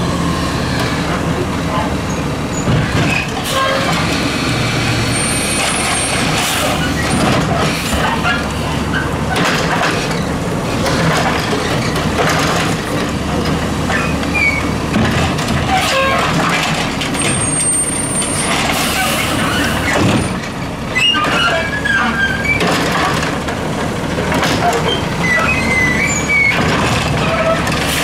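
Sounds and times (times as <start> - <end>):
truck engine running under load: 0.0 - 28.0
cart and arm clunking: 5.9 - 17.6, 18.2 - 28.0.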